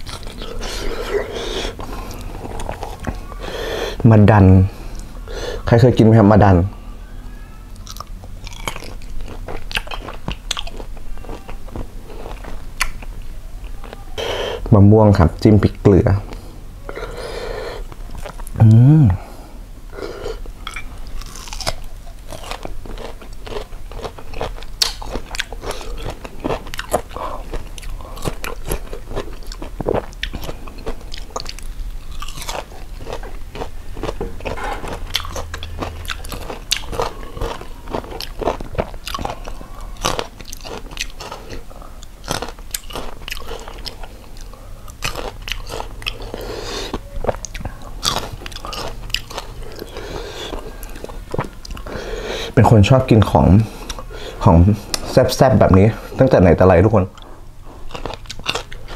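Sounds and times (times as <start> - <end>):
crunching and chewing mango: 0.0 - 3.4, 7.7 - 14.1, 16.2 - 18.8, 19.9 - 52.0, 57.0 - 58.9.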